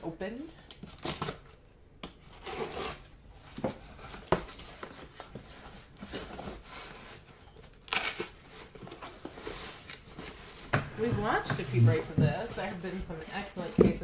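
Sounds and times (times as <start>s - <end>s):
cardboard tearing rasp: 2.2s - 10.6s
cardboard flaps rustling: 2.3s - 14.0s.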